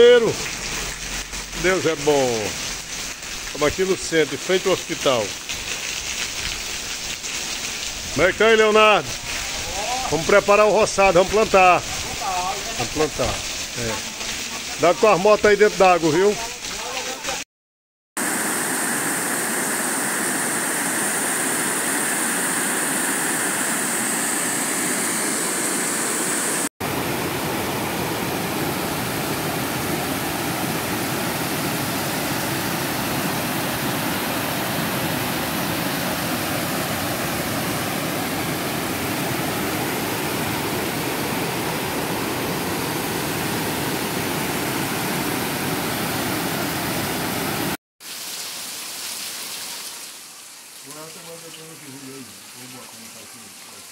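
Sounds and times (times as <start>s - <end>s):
water rushing over dam spillway: 0.0s - 17.4s, 26.9s - 47.8s.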